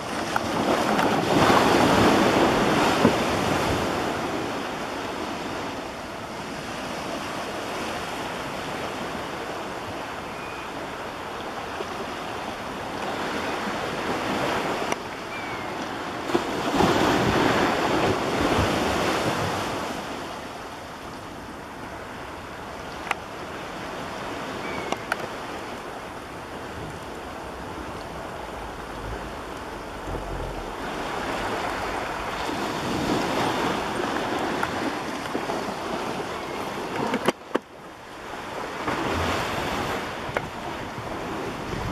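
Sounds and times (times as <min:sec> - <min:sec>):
ocean waves washing onto beach: 0:00.0 - 0:41.9.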